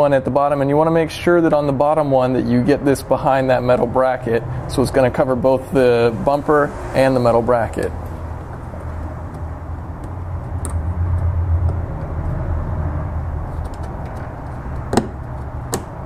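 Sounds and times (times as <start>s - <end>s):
low background rumble: 6.0s - 16.0s.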